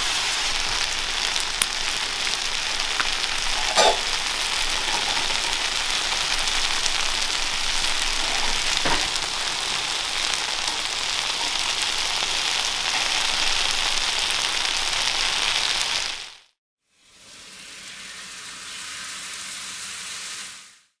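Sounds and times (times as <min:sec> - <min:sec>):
food sizzling on griddle: 0:00.0 - 0:16.5.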